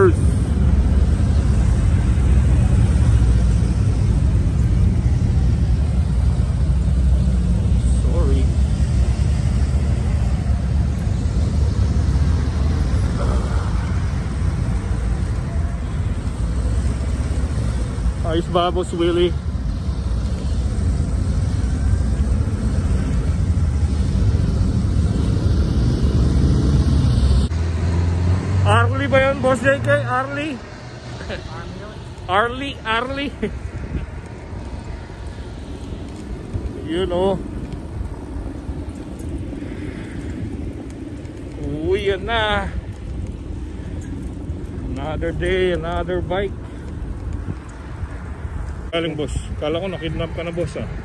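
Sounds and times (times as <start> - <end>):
motorcycles rumbling: 0.0 - 51.0
wind buffeting microphone: 32.0 - 51.0.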